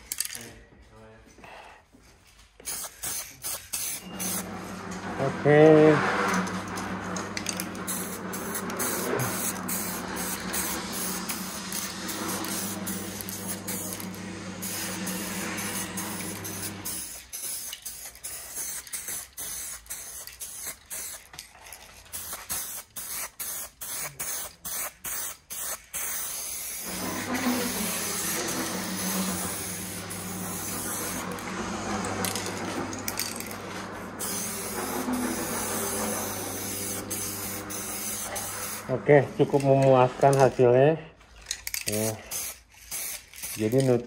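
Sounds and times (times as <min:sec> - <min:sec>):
aerosol spray can hissing: 0:02.6 - 0:04.5, 0:07.4 - 0:21.3, 0:22.0 - 0:31.5, 0:32.2 - 0:38.9, 0:42.0 - 0:43.7.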